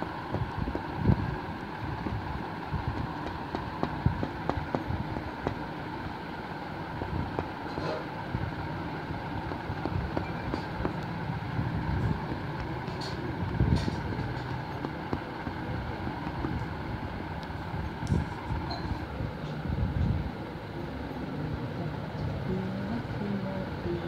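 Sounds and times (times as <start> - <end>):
cotton buds dabbing paint on paper: 0.0 - 18.5
steady background hum: 0.0 - 24.0.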